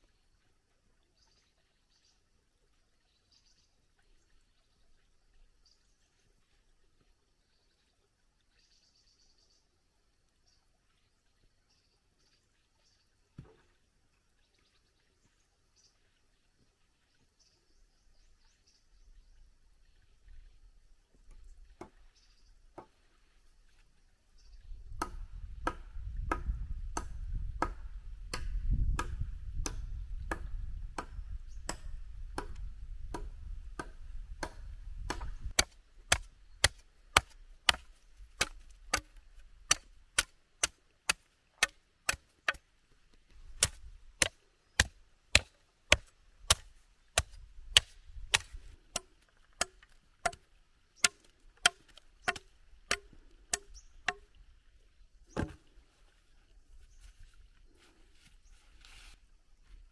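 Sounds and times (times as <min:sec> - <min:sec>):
machete chopping bamboo: 0:25.0 - 0:42.6, 0:43.5 - 0:54.3.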